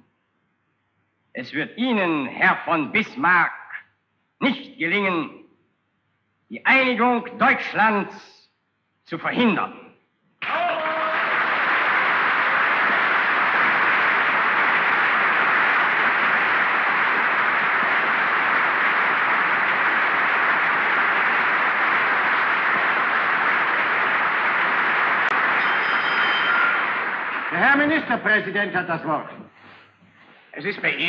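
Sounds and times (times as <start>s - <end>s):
loud steady applause: 10.4s - 29.8s.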